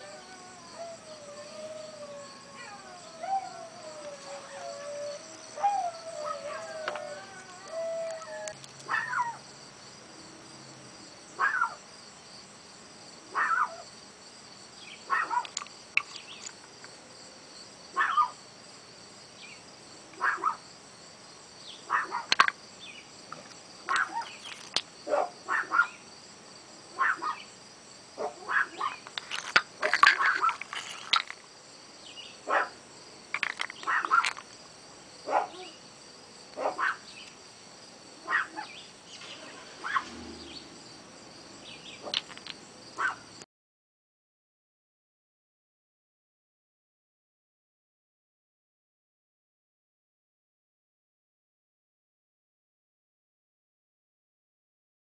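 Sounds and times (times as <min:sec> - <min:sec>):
dogs whining and howling: 0:00.0 - 0:09.4, 0:11.4 - 0:11.8, 0:13.3 - 0:13.8, 0:15.1 - 0:15.6, 0:20.2 - 0:20.6, 0:23.9 - 0:26.0, 0:28.2 - 0:31.3, 0:33.4 - 0:34.4, 0:38.3 - 0:40.8
small dog yipping: 0:02.5 - 0:09.4, 0:11.4 - 0:11.8, 0:13.4 - 0:13.8, 0:15.1 - 0:15.6, 0:18.0 - 0:18.4, 0:20.2 - 0:20.6, 0:21.9 - 0:22.3, 0:23.9 - 0:24.4, 0:25.1 - 0:26.0, 0:27.0 - 0:27.4, 0:28.2 - 0:29.0, 0:33.9 - 0:34.3, 0:36.6 - 0:37.0, 0:38.3 - 0:38.7, 0:39.3 - 0:40.2, 0:43.0 - 0:43.2.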